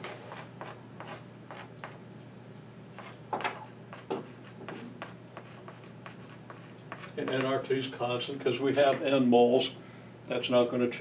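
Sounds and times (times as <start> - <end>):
steady low hum: 0.0 - 11.0
chalk tapping and scratching: 0.1 - 2.0, 3.0 - 3.3, 3.9 - 7.6.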